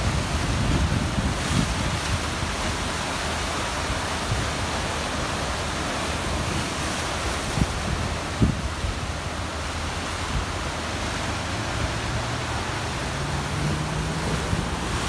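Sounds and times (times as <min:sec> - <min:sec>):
wind buffeting microphone: 0:00.0 - 0:02.9, 0:07.2 - 0:09.4
waves breaking over rocks: 0:00.0 - 0:15.0.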